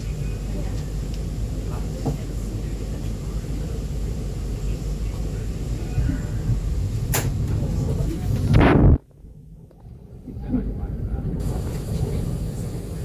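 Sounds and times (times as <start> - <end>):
tram cabin low rumble: 0.0 - 13.0.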